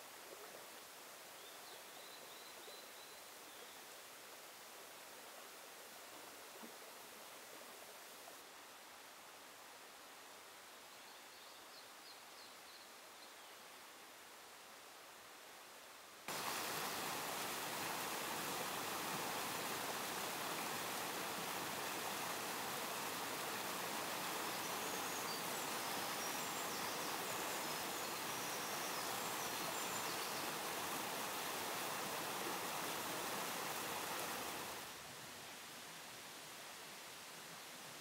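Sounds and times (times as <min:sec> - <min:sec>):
mountain stream rushing: 0:13.7 - 0:38.0.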